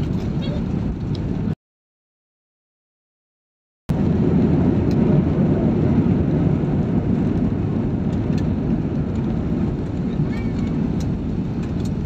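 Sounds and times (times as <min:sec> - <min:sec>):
airliner cabin rumble: 0:00.0 - 0:01.6, 0:03.9 - 0:12.0.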